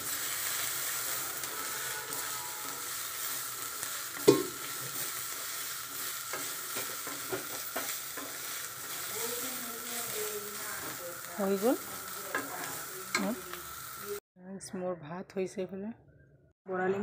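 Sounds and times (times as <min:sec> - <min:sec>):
greens sizzling in oil: 0:00.0 - 0:14.2
knocks against pan: 0:04.3 - 0:04.6.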